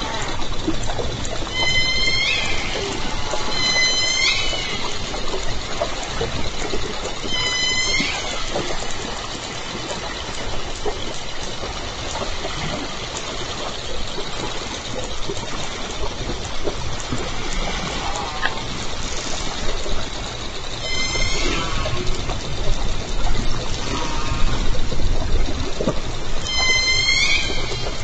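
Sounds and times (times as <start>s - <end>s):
killer whale call: 0.0s - 10.4s, 17.0s - 19.8s, 20.7s - 28.0s
faint underwater clicks: 0.0s - 28.0s
underwater hiss: 20.8s - 25.8s.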